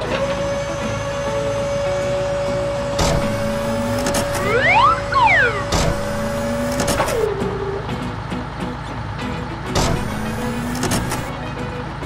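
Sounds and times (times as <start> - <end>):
cartoon motor hum: 3.0 - 7.8
rising and falling whine: 3.1 - 8.2.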